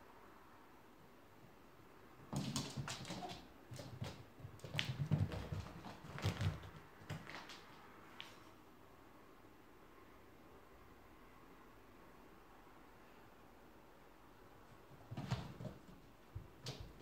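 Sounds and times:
cat paws thumping: 2.3s - 7.8s, 15.0s - 17.0s.

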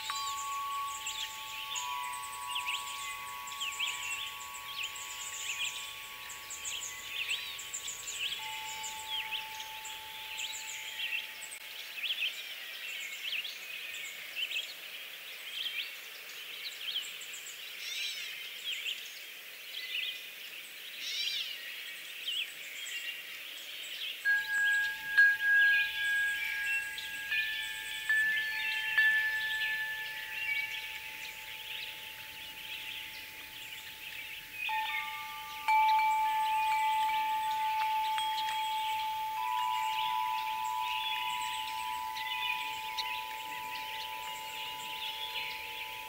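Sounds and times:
wind chimes ringing: 0.0s - 12.1s, 24.2s - 46.0s
songbirds chirping: 0.0s - 46.0s.

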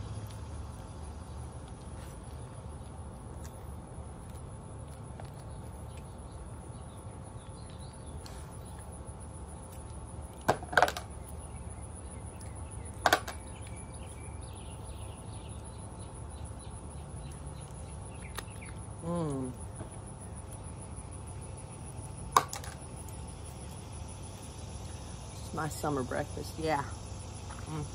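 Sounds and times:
insect drone: 6.1s - 27.9s.

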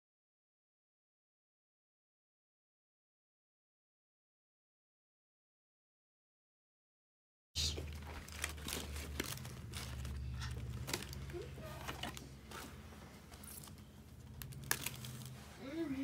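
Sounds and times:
steady low hum: 7.6s - 16.0s
cardboard and paper rustling: 7.7s - 16.0s.

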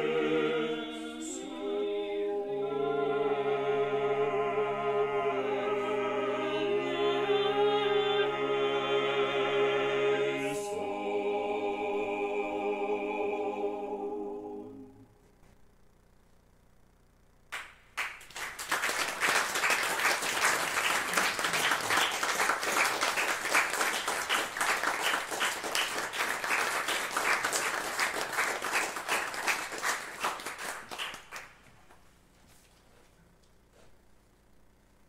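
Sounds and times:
choir singing chord: 0.0s - 15.1s
audience applauding: 17.6s - 31.6s.

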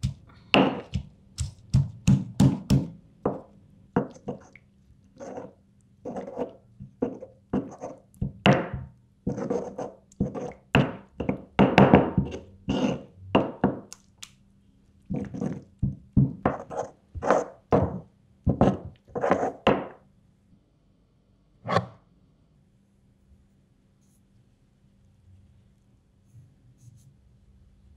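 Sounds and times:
stone pestle pounding in mortar: 0.0s - 4.2s, 7.6s - 8.9s, 10.2s - 13.9s, 15.8s - 19.9s.

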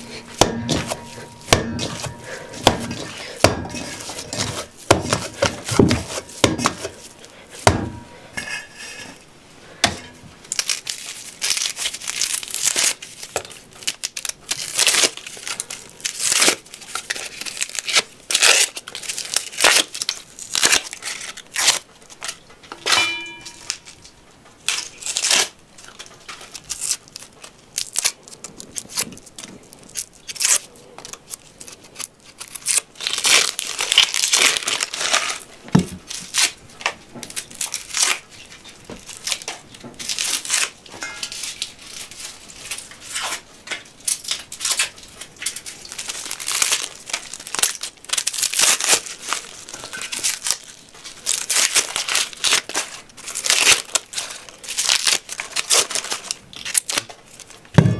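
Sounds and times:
onion skins crackling and tearing: 0.0s - 9.2s, 10.4s - 57.9s
short ringing clink: 23.0s - 23.7s.

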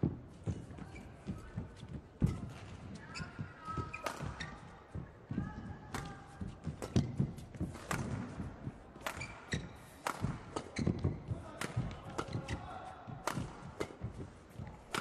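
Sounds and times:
thudding footsteps: 0.0s - 12.1s
shoe squeaks on court floor: 3.1s - 4.8s, 9.1s - 11.3s
racket striking shuttlecock: 3.9s - 4.4s, 5.9s - 15.0s.

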